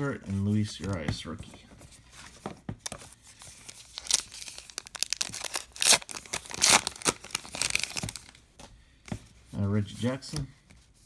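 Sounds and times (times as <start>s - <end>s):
wrapper tearing and crinkling: 3.6s - 8.4s.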